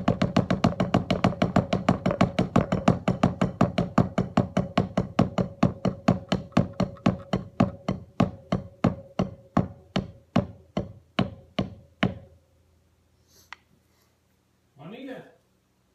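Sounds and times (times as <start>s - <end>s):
drumsticks striking hard surface: 0.1s - 12.3s.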